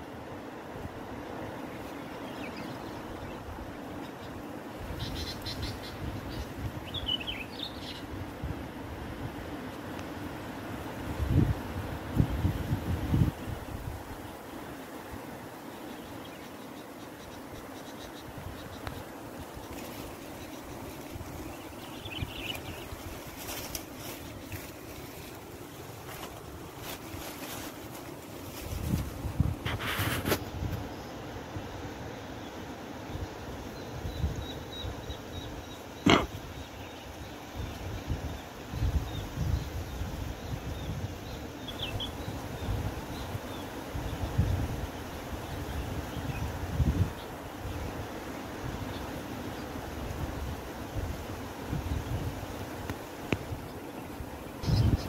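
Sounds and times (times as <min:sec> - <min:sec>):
wind buffeting microphone: 0:11.0 - 0:14.2, 0:28.6 - 0:30.9, 0:37.6 - 0:48.9, 0:54.6 - 0:55.0
bulbuls chirping: 0:15.8 - 0:28.6.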